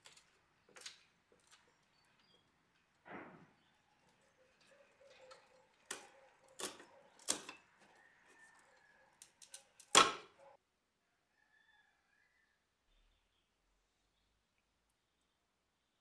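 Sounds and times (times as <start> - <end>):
wooden clicks and knocks: 5.1 - 8.0.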